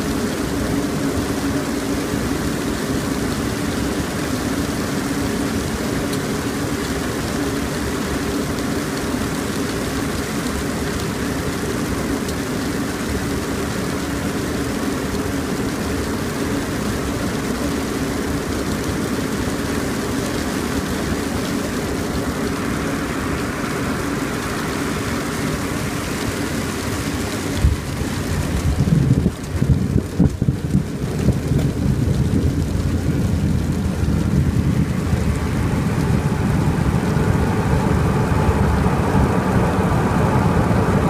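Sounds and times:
jet airflow and engine noise: 0.0 - 41.0
rain on windscreen: 0.0 - 41.0
uneven rumbling: 22.2 - 41.0.

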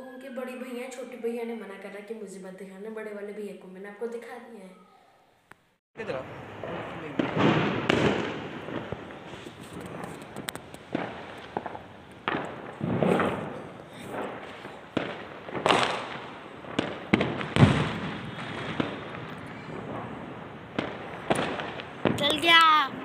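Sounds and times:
firecrackers bursting: 6.0 - 23.0.

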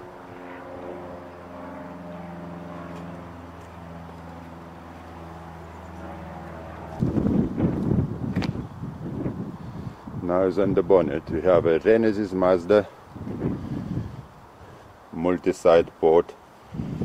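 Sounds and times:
engine humming: 0.0 - 8.8
wind buffeting microphone: 6.6 - 11.9, 12.5 - 14.9, 16.6 - 17.0.

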